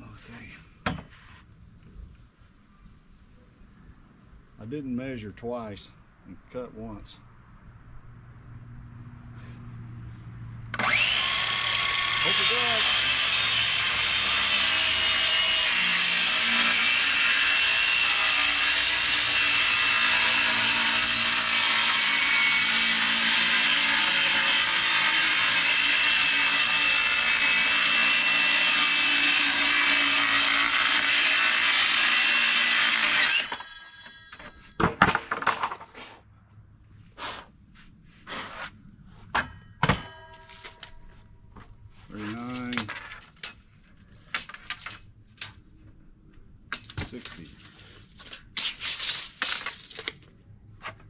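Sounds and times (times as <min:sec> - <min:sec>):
circular saw cutting plywood: 0:10.8 - 0:34.8.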